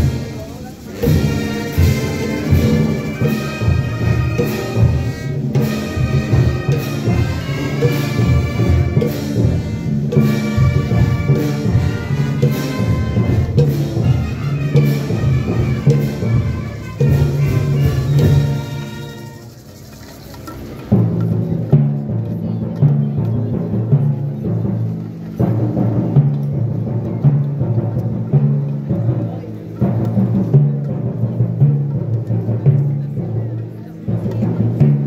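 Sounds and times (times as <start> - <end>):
brass band playing: 0.0 - 19.8.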